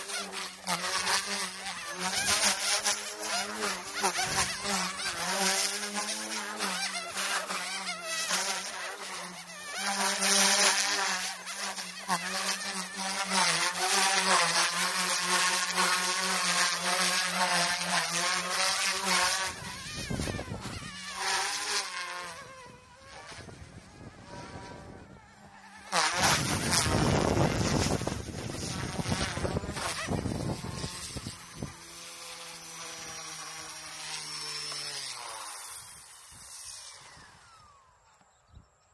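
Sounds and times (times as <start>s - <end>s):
rc helicopter buzzing whine: 0.0s - 38.9s
wind gusting on microphone: 19.2s - 20.9s, 22.4s - 31.8s.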